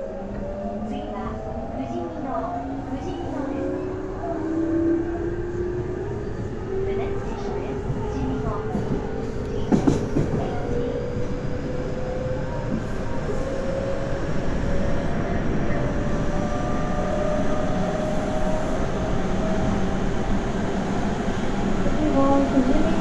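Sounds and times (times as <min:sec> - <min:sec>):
train wheels rumbling on rails: 0:05.1 - 0:23.0.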